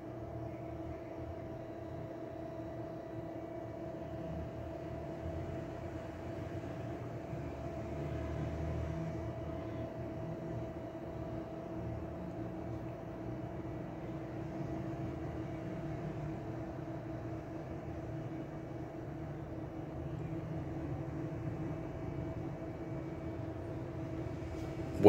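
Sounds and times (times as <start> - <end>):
machine hum with steady tones: 0.0 - 25.0.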